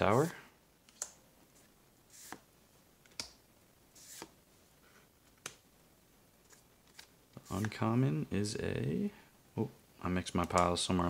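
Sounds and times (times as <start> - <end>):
trading cards snapping and sliding: 6.5 - 7.7.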